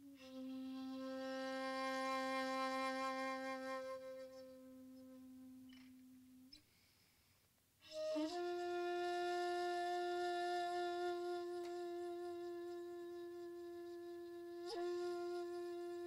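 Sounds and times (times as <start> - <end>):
bamboo flute long tone: 0.0 - 6.4, 7.8 - 16.0.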